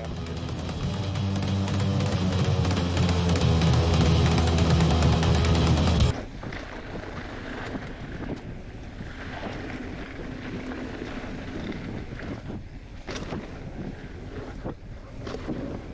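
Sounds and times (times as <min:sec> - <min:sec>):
sharp knocks and rattles: 0:00.0 - 0:06.1
wind on microphone: 0:06.1 - 0:15.9.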